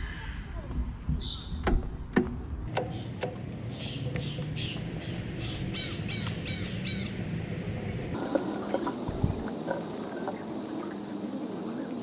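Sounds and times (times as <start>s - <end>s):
birds calling: 2.7s - 12.0s.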